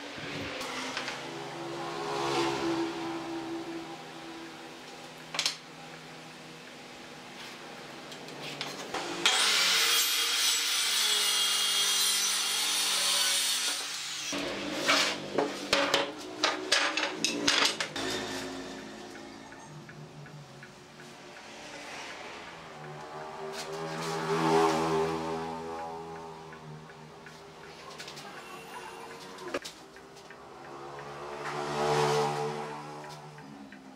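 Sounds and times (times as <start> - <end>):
circular saw cutting wood: 0.1 - 3.7, 8.9 - 15.2.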